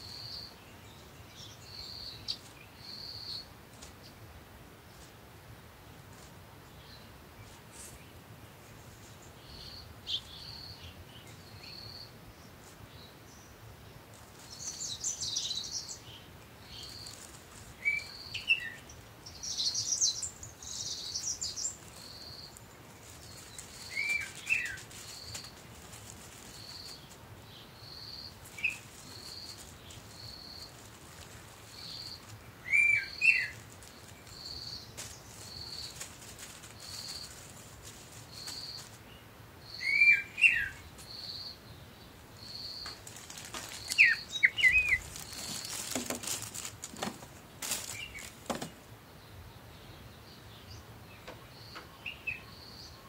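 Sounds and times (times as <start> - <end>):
small bird chirping: 0.0 - 4.2, 6.7 - 13.6, 14.2 - 53.0
plastic bags rustling: 21.1 - 27.3, 28.3 - 39.0, 42.9 - 48.8.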